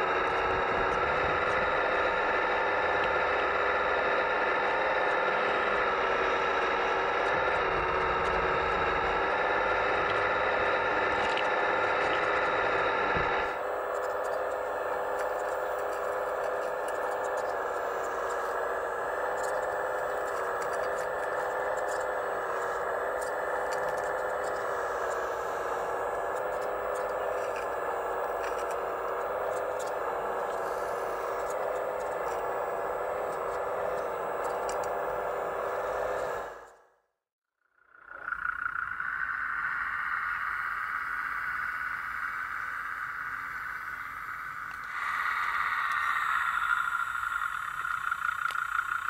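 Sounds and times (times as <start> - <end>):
hydraulic pump whine: 0.0 - 36.9, 38.1 - 49.0
faint ticks: 13.7 - 36.4, 43.4 - 49.0.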